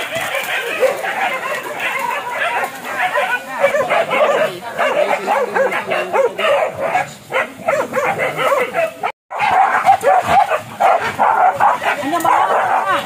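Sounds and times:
hunting dogs barking and yelping: 0.0 - 13.0.

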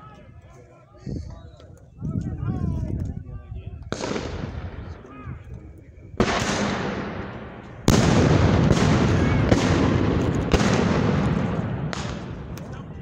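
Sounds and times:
gunshots with rumbling echo: 3.9 - 5.2, 6.2 - 13.0.

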